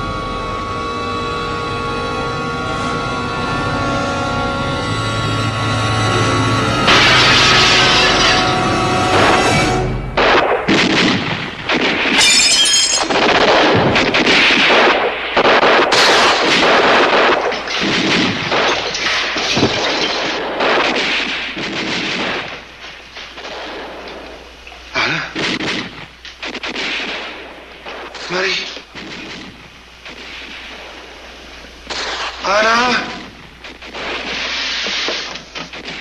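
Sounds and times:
dramatic music sting: 0:00.0 - 0:10.2
gunfire and impacts: 0:06.8 - 0:36.0
glass shattering: 0:06.9 - 0:08.6, 0:12.1 - 0:13.2, 0:17.4 - 0:21.3.

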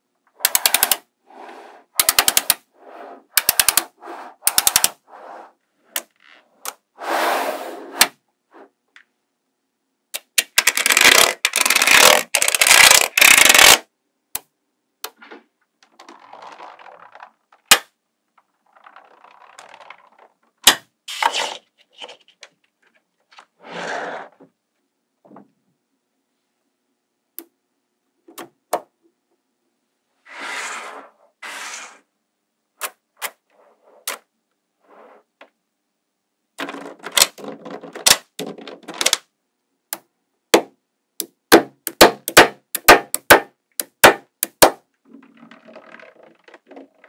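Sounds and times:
magnetic metal balls clicking: 0:00.4 - 0:01.1, 0:02.0 - 0:02.6, 0:03.4 - 0:05.0, 0:10.1 - 0:13.8, 0:41.2 - 0:47.0
balls scraping and sliding: 0:00.4 - 0:09.1, 0:15.1 - 0:24.6, 0:30.2 - 0:32.1, 0:33.2 - 0:35.6, 0:45.0 - 0:47.0.

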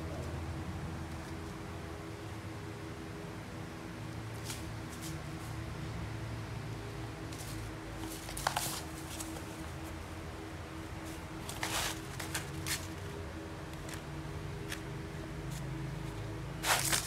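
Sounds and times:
steady low hum: 0:00.0 - 0:17.0
cardboard rustling: 0:07.4 - 0:09.5, 0:16.6 - 0:17.0
plastic sheeting crinkling: 0:16.6 - 0:17.0.

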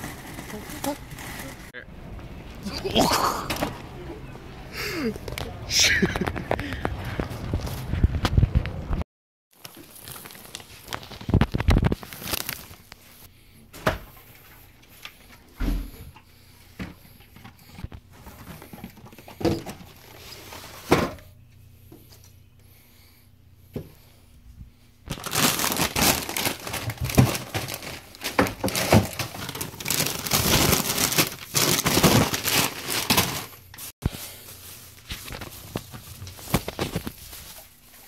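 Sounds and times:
paper bag rustling: 0:00.0 - 0:01.7, 0:09.6 - 0:12.9, 0:25.1 - 0:38.0.

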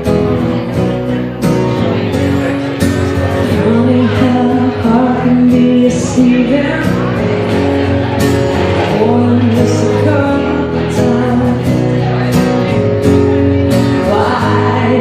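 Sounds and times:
electric bass guitar: 0:00.0 - 0:15.0
strummed acoustic guitar: 0:00.0 - 0:15.0
woman singing: 0:03.4 - 0:07.7, 0:08.9 - 0:11.9, 0:13.7 - 0:15.0.

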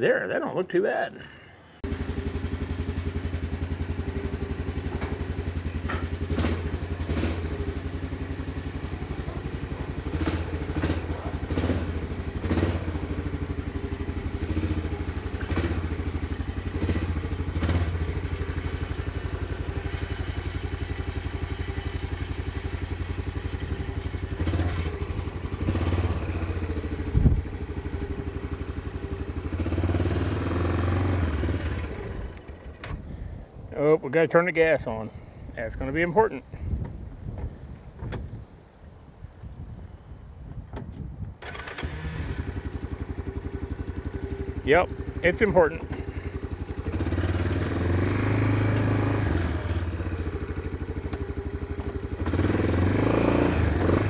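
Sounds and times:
atv engine running: 0:01.2 - 0:33.7, 0:41.4 - 0:54.0
clunks and rattles: 0:04.8 - 0:06.5, 0:36.8 - 0:38.4, 0:40.7 - 0:41.9.

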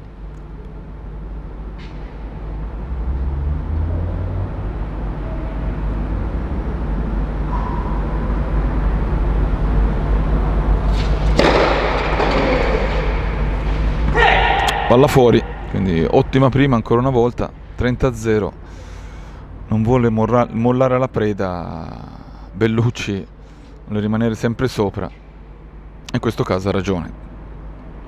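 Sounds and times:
low steady rumble: 0:00.0 - 0:28.0
tennis ball strike: 0:10.9 - 0:16.0.

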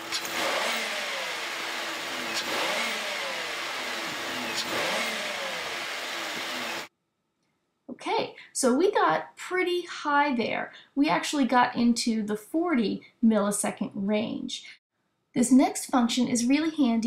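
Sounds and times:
car engine revving: 0:00.0 - 0:06.9.

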